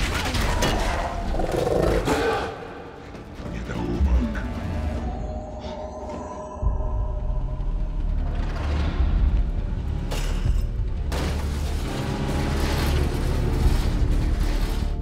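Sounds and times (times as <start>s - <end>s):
orchestral film score: 0.0s - 15.0s
deep steady rumble: 6.5s - 10.0s.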